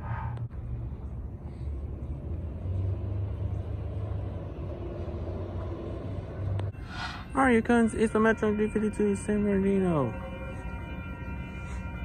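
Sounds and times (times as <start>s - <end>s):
bus driving past: 0.0s - 8.9s.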